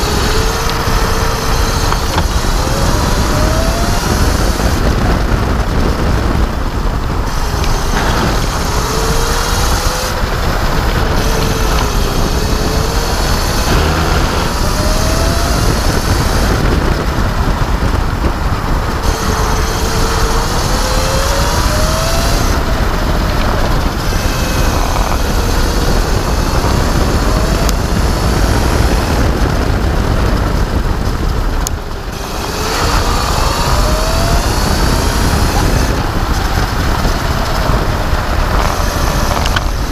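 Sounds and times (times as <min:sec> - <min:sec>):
electric motor whine: 0:00.0 - 0:39.9
wind and road rumble: 0:00.0 - 0:39.9.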